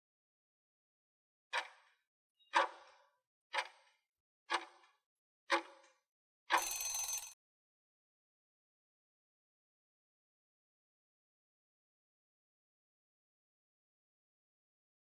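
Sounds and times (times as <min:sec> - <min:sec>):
stopwatch ticks: 0:01.5 - 0:07.4
short ring: 0:06.6 - 0:07.4.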